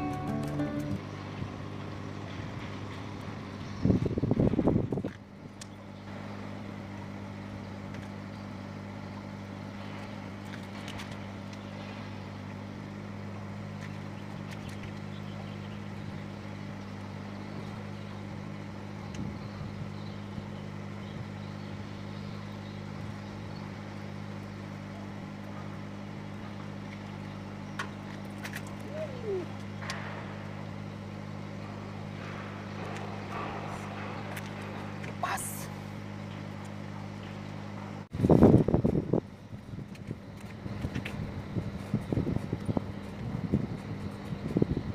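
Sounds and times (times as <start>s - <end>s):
boat engine idling: 0.0s - 38.1s.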